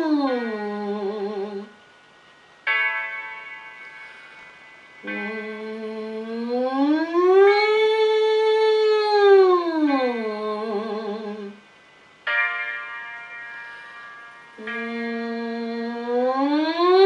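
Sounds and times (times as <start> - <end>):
woman singing a glide: 0.0 - 1.8, 5.0 - 11.6, 14.6 - 17.0.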